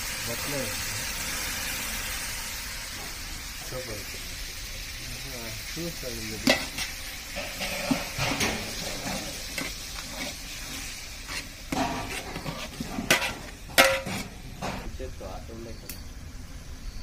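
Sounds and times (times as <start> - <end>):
vegetables sizzling: 0.0 - 15.4
ladle scraping metal pot: 6.4 - 15.0
ladle clanking against pot: 11.7 - 14.9.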